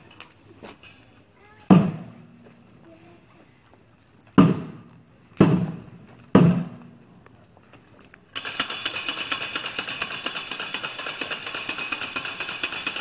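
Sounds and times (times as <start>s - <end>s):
heavy drum beats: 4.4s - 6.9s
dense rattle: 8.3s - 13.0s.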